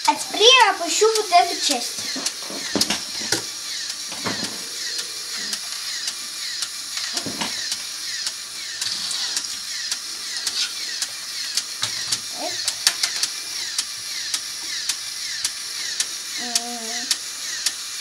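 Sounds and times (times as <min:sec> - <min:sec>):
electric motor whirring: 0:00.0 - 0:18.0.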